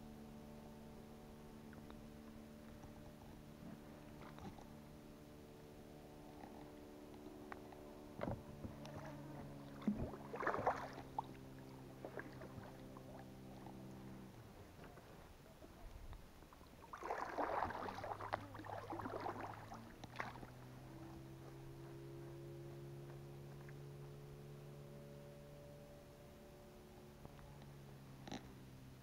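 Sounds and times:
steady low hum: 0.0s - 29.0s
oars dipping and splashing: 1.7s - 24.0s.

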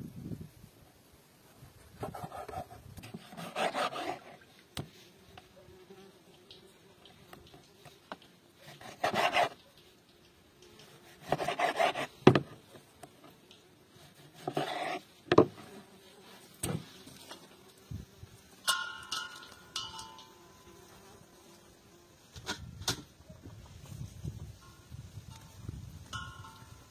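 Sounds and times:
knife sawing through meat: 2.0s - 4.4s, 8.6s - 9.6s, 11.0s - 12.1s.

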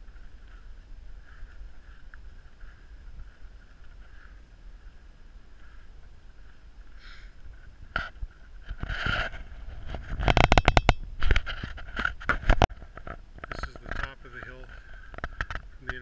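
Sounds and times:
wind rumble on microphone: 7.4s - 13.7s.

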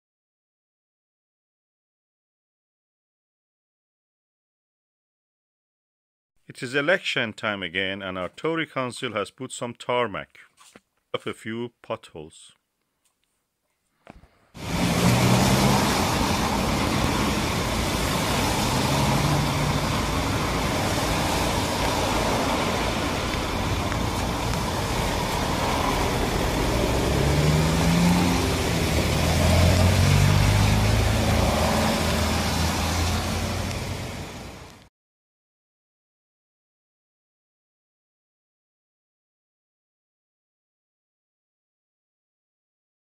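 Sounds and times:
vehicle engines humming: 14.6s - 34.8s
tyres hissing on wet street: 14.6s - 34.9s.

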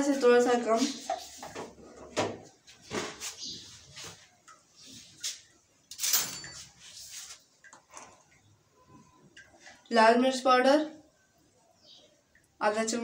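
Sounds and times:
utensils scraping and clattering: 5.9s - 7.4s.

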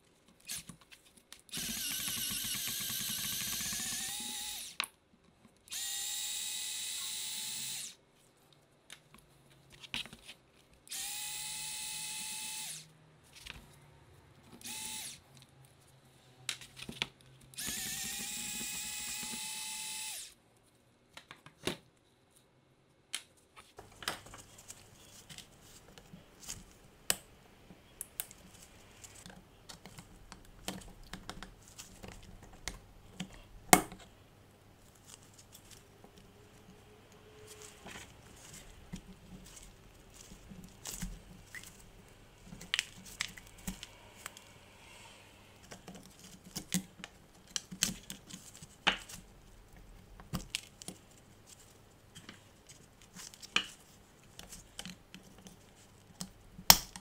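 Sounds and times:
electric screwdriver whining: 1.5s - 4.8s, 5.7s - 8.0s, 10.9s - 12.8s, 14.6s - 15.2s, 17.6s - 20.4s.

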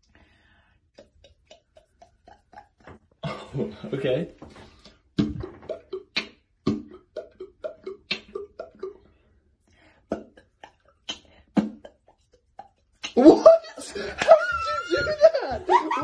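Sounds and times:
beatboxing: 0.9s - 3.1s, 4.8s - 9.1s, 10.1s - 13.8s.

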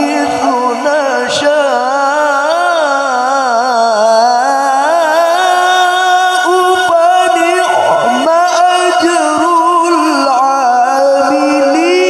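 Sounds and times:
man chanting through microphone: 0.0s - 12.0s.

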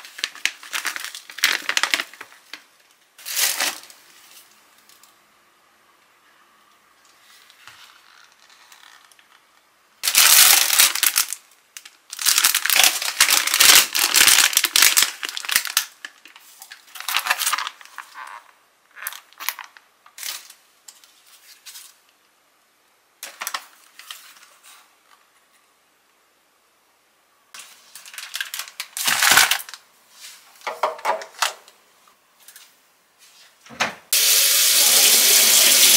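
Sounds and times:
plastic bag rustling: 0.0s - 4.8s, 10.0s - 22.0s, 27.6s - 31.5s.

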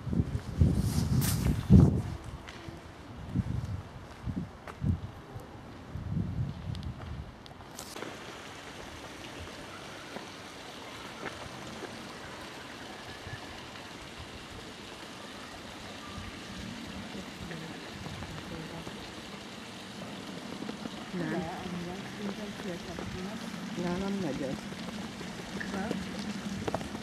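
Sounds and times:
flowing water rushing: 8.0s - 27.0s.

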